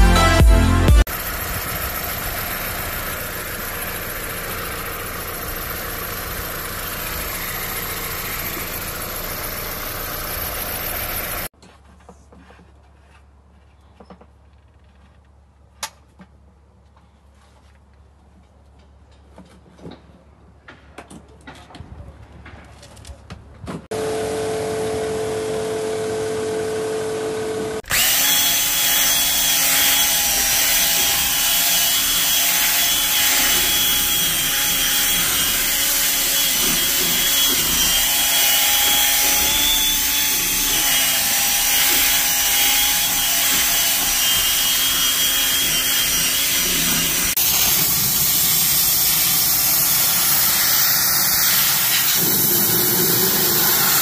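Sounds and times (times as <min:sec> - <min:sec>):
power drill scrubbing brush: 0:02.0 - 0:11.5, 0:27.8 - 0:54.0
steam cleaner hissing: 0:45.6 - 0:54.0.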